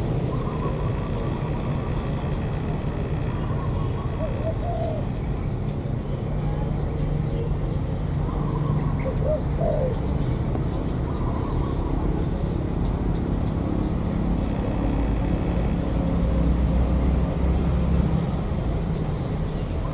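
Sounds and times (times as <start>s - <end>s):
dove cooing: 3.4s - 5.1s, 8.3s - 10.1s.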